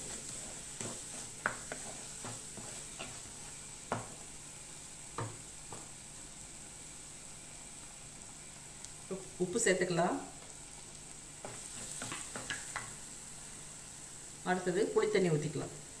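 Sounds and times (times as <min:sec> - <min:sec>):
wooden spatula stirring paste: 0:00.0 - 0:04.4
paste sizzling in oil: 0:00.0 - 0:15.0.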